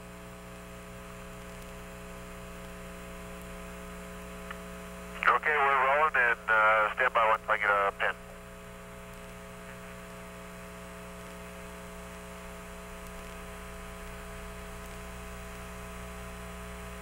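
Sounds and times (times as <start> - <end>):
electrical hum: 0.0 - 17.0
radio static hiss: 4.9 - 11.8.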